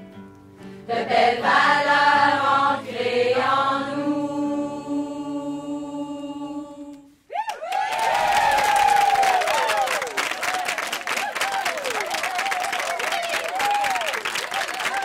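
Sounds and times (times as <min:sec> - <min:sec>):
choir holding a chord: 0:00.9 - 0:07.1
cheers and applause: 0:07.3 - 0:15.0.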